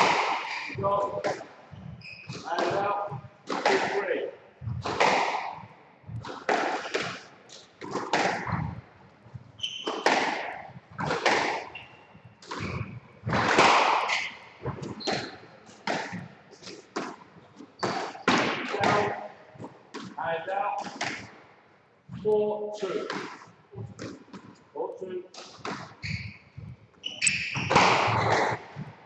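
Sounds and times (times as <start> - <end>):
shoes squeaking on wooden floor: 0.0 - 3.5, 4.6 - 19.8, 25.4 - 29.0
squash ball hitting rackets and walls: 0.0 - 8.9, 9.6 - 21.4, 22.2 - 24.6, 25.4 - 29.0.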